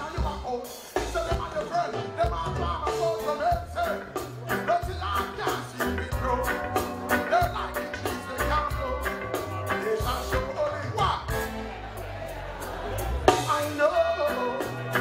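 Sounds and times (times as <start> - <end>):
man singing into a microphone: 0.0 - 11.3, 13.3 - 15.0
drum beat: 0.0 - 11.6
bass guitar: 0.0 - 15.0
live reggae band: 0.0 - 15.0.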